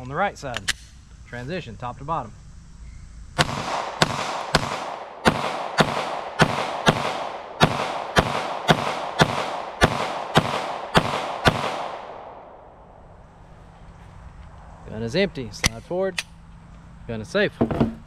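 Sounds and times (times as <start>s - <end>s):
pistol rapid fire with echo: 3.4s - 12.6s.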